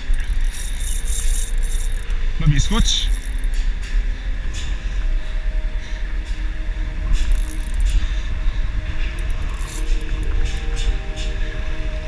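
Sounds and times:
fishing reel metallic bursts: 0.0s - 4.0s, 7.1s - 8.0s, 9.0s - 11.4s
low rumble: 0.0s - 12.0s.

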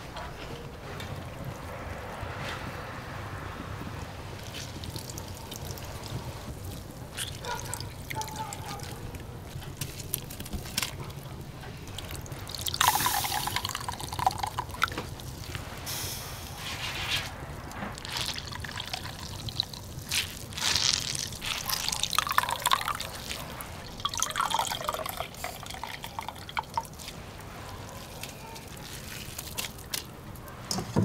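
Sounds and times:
liquid pouring and dripping: 4.4s - 15.8s, 17.6s - 30.1s.

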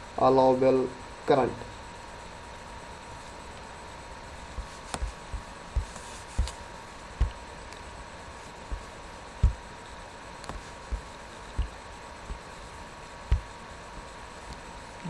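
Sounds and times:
steady hiss: 0.0s - 15.0s
soft low thumps: 4.5s - 14.7s.

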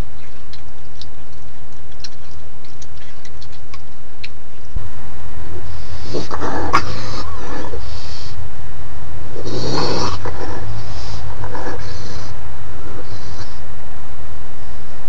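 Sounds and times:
steady low hum: 0.0s - 15.0s
raccoon vocalizing: 5.6s - 8.4s, 9.3s - 13.6s.

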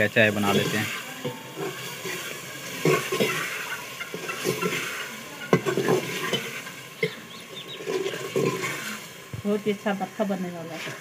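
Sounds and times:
onions sizzling in oil: 0.0s - 11.0s
ladle scraping metal pot: 0.3s - 9.3s.

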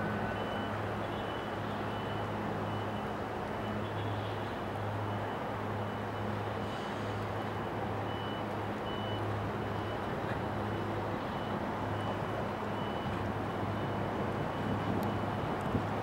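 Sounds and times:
faint high-pitched beep: 0.0s - 3.8s, 8.1s - 10.0s
ferry diesel engines droning: 0.0s - 16.0s.

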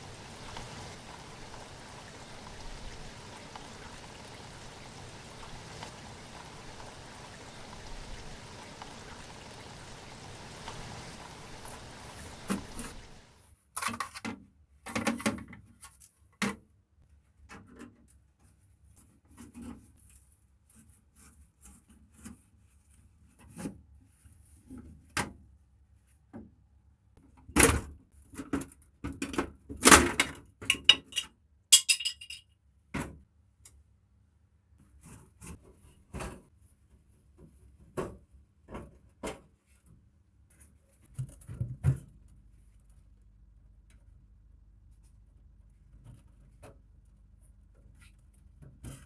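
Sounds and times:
parts clicking and clattering: 30.7s - 32.4s.

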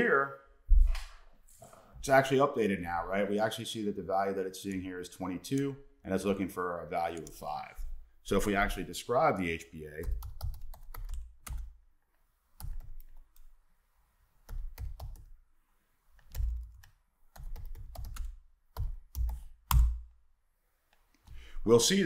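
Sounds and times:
keyboard typing: 10.0s - 11.8s, 12.6s - 13.5s, 14.4s - 15.4s, 16.2s - 20.0s.

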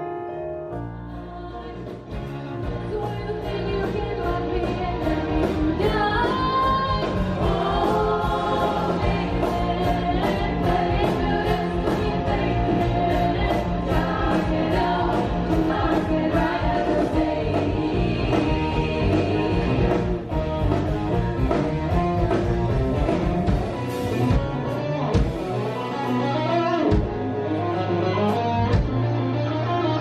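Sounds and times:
live band with steady beat: 1.4s - 30.0s
women's choir singing: 2.9s - 20.1s.

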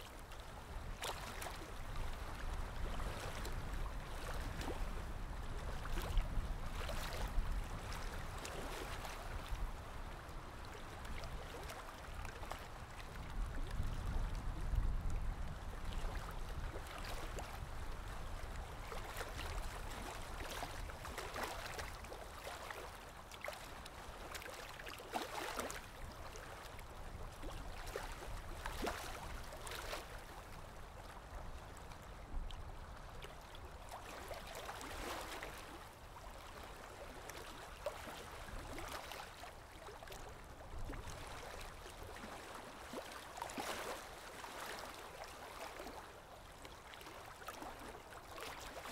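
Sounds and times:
rushing water: 0.0s - 48.9s.

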